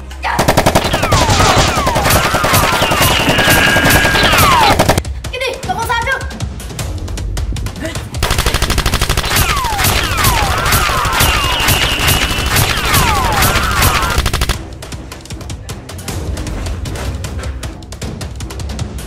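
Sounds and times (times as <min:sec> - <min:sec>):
background music: 0:00.0 - 0:19.0
machine-gun fire sound effects: 0:00.4 - 0:05.0, 0:08.2 - 0:14.6
falling swooping whistles: 0:10.1 - 0:14.2.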